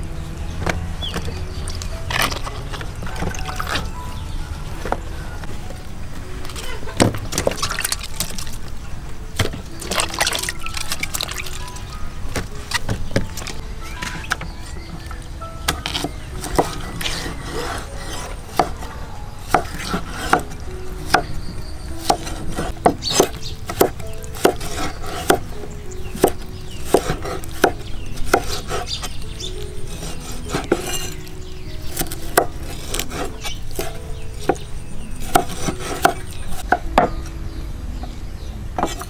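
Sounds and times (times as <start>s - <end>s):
cleaver chopping on wooden block: 15.7s - 21.4s, 22.0s - 29.1s, 29.9s - 31.2s, 31.9s - 37.3s, 38.8s - 39.0s.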